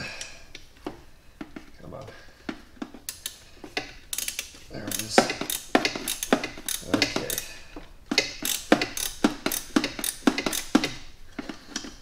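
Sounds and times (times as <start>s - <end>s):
ratchet wrench clicking: 3.1s - 7.5s, 8.1s - 11.1s.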